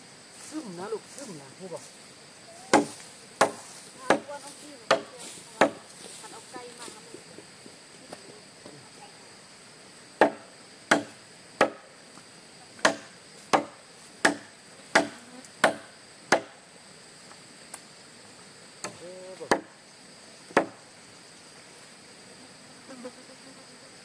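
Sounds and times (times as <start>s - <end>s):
blade chopping wood: 2.7s - 4.3s, 4.9s - 5.8s, 10.2s - 11.8s, 12.8s - 16.6s.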